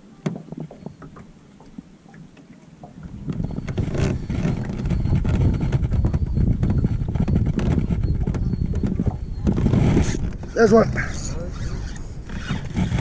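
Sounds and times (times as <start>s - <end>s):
wind buffeting microphone: 2.8s - 13.0s.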